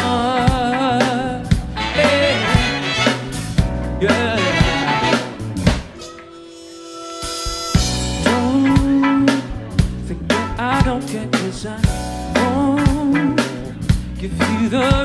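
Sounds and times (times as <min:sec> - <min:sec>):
steady drum beat: 0:00.0 - 0:06.0, 0:07.2 - 0:15.0
big band playing funk: 0:00.0 - 0:15.0
horn section riffs: 0:00.3 - 0:10.6.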